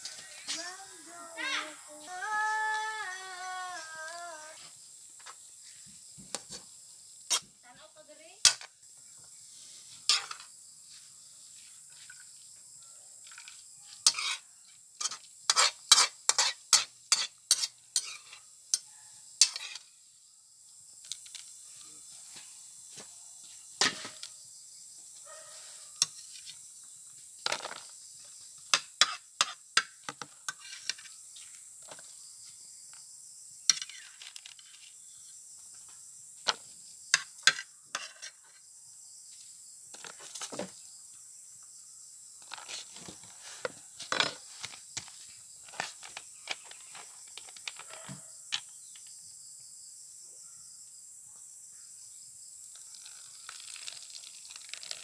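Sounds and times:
utensils clinking and scraping on wok: 10.0s - 10.5s, 13.3s - 19.9s, 28.7s - 29.6s, 30.2s - 31.1s, 33.7s - 34.8s, 37.2s - 38.5s.

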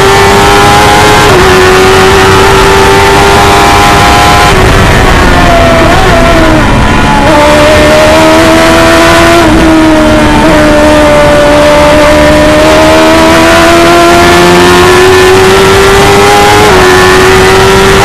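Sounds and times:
gear change: 0.0s - 18.0s
race car engine accelerating: 0.0s - 18.0s.

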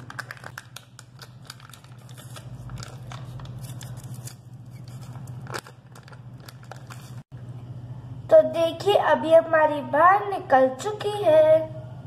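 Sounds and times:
plastic wrapper crinkling: 0.0s - 7.3s
steady low hum: 0.0s - 12.0s.

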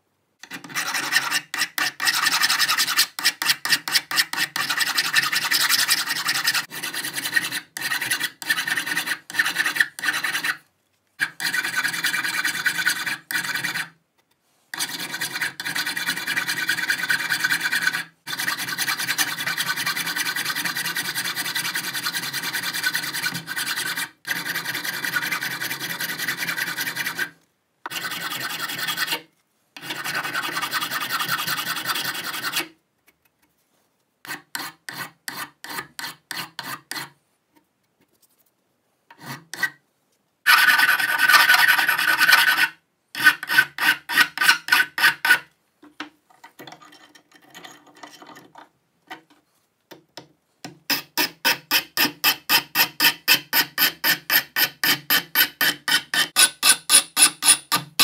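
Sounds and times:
hand file rasping on metal nut: 0.4s - 10.6s, 11.2s - 13.9s, 14.8s - 27.3s, 27.9s - 29.2s, 29.8s - 32.7s, 34.2s - 37.1s, 40.5s - 45.5s, 50.9s - 58.0s.

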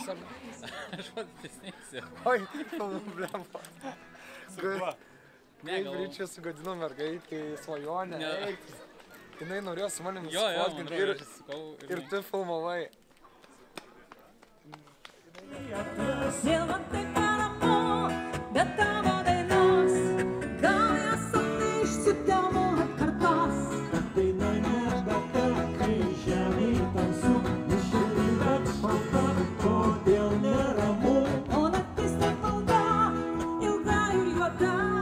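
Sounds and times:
strummed acoustic guitars: 15.5s - 34.9s
electric guitar: 15.5s - 35.0s
person singing: 15.5s - 35.0s.

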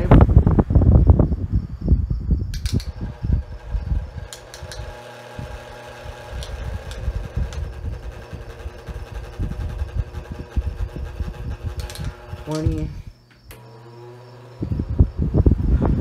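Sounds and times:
fan motor humming with whine: 0.0s - 16.0s
low rumble: 6.2s - 13.2s.

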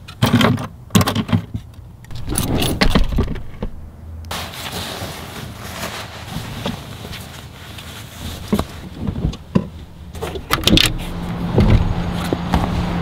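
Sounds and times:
objects clattering in a wooden box: 0.1s - 3.8s.

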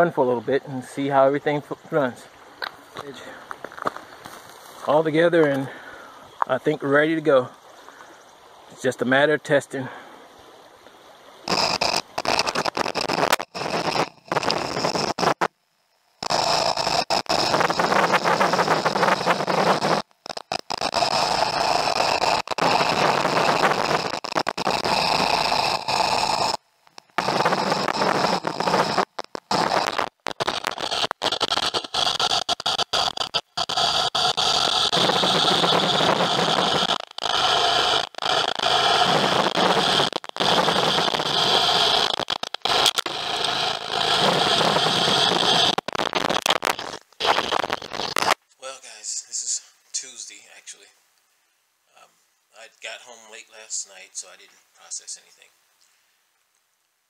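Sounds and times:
underwater motor and pump noise: 10.4s - 48.4s
gravel rattling into nozzle: 11.5s - 15.5s, 16.2s - 48.4s.

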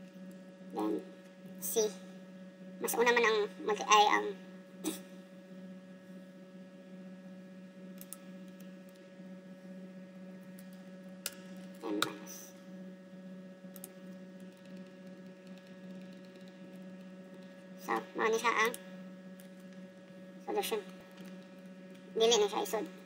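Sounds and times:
electrical hum: 0.0s - 23.0s
computer keys typing: 13.7s - 17.6s.

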